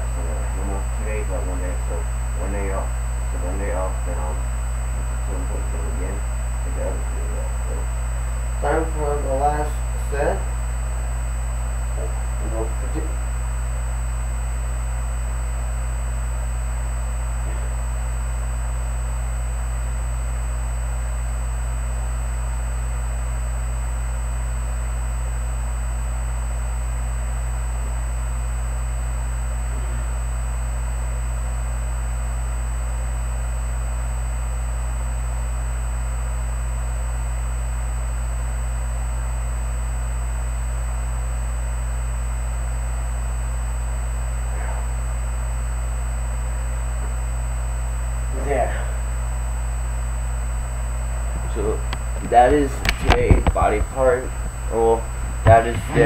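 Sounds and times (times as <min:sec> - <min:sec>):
thin high whine: 0:00.0 - 0:25.4, 0:41.2 - 0:56.0
steady low hum: 0:00.0 - 0:56.0.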